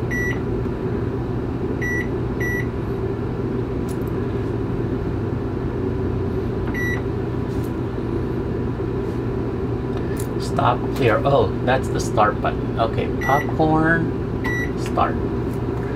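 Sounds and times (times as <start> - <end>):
steady low hum: 0.0 - 15.9
microwave keypad beeps: 0.1 - 0.4, 1.8 - 2.7, 6.7 - 7.0, 13.2 - 13.6, 14.4 - 14.8.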